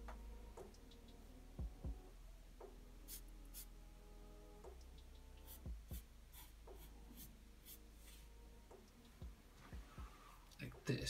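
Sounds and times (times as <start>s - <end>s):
marker scratching on paper: 3.1s - 3.7s, 5.4s - 8.2s.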